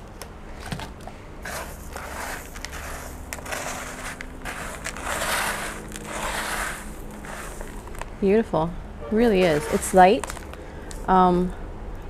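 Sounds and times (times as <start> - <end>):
hands crunching potting mix: 1.4 - 8.2, 9.3 - 11.2.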